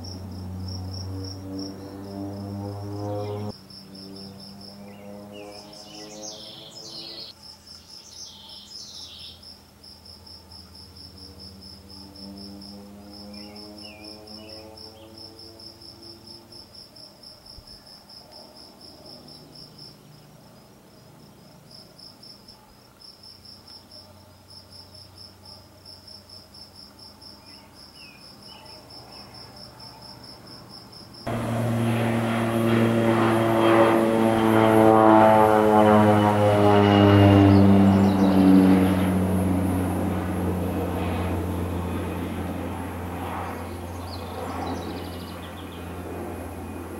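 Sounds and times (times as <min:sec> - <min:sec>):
propeller plane droning: 0:00.0 - 0:16.8, 0:17.7 - 0:22.7, 0:30.6 - 0:46.9
crickets chirping: 0:00.0 - 0:34.7
bird chirps: 0:04.1 - 0:09.4.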